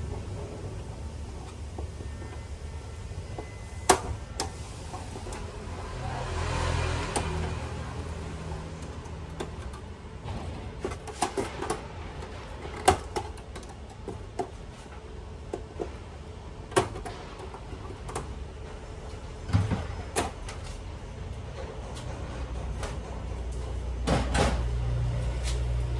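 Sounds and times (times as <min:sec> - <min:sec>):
tools clicking and knocking on metal: 0:06.4 - 0:16.0.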